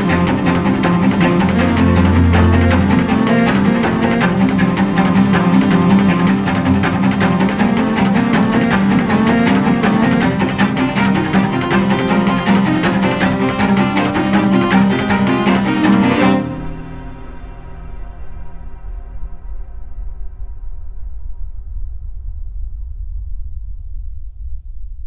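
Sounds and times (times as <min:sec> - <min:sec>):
bowed cello playing low notes: 0:00.0 - 0:17.1.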